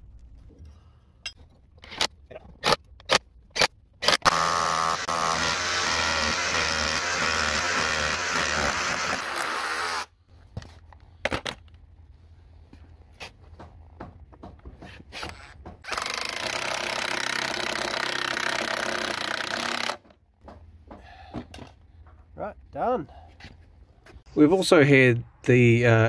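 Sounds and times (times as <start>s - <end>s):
cordless drill boring wood: 4.1s - 10.1s, 15.3s - 20.1s.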